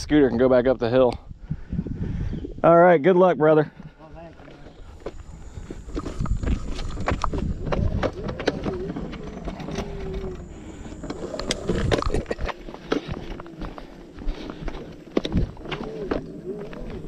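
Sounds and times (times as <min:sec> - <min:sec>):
scooter wheels rumbling: 0:04.8 - 0:17.0.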